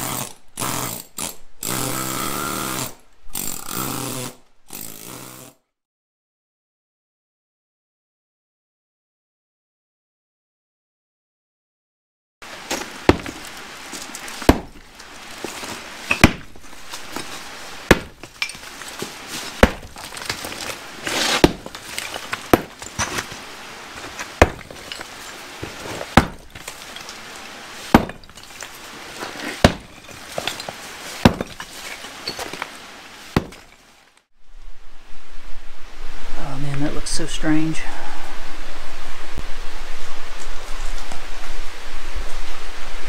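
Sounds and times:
broken pieces clinking: 0:12.6 - 0:32.8
sledgehammer striking concrete: 0:12.7 - 0:14.8, 0:15.4 - 0:23.4, 0:24.0 - 0:27.2, 0:27.9 - 0:31.7, 0:33.4 - 0:33.8.

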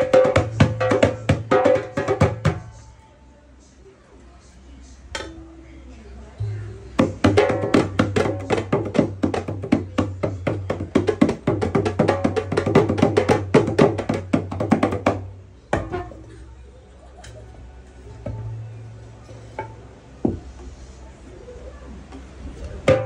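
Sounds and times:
drums beaten fast: 0:00.0 - 0:02.7, 0:07.0 - 0:16.0.

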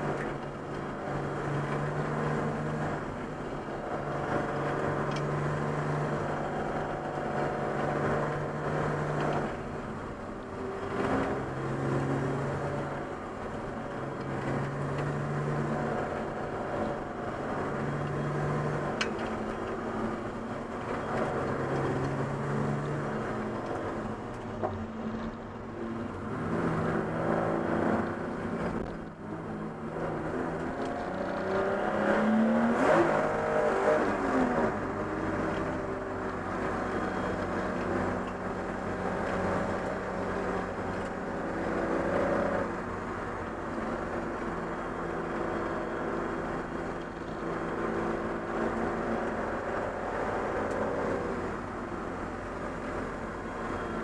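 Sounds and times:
race car engine revving: 0:26.1 - 0:54.0.

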